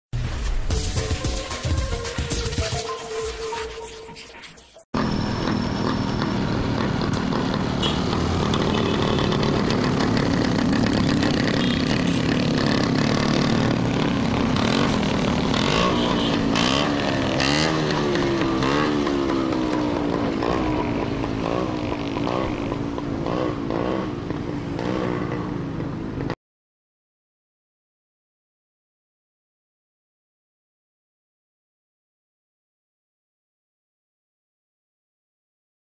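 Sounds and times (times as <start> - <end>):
motorbike engines revving: 5.0 - 26.4.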